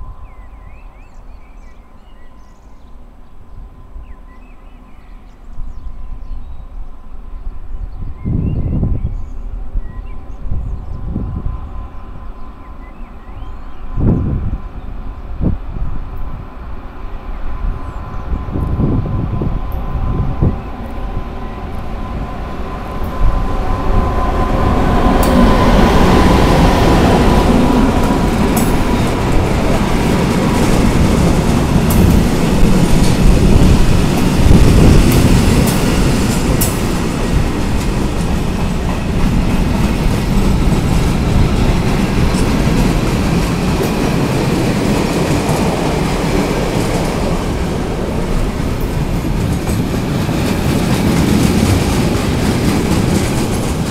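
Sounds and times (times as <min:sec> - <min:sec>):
electric locomotive whine: 0:00.0 - 0:53.9
freight wagons rumbling: 0:21.9 - 0:53.9
wheels clicking over rail joints: 0:48.2 - 0:53.9.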